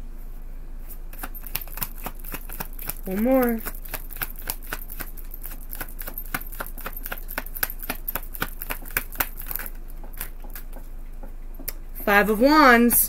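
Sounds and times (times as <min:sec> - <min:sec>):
cards being shuffled: 0:00.9 - 0:10.8.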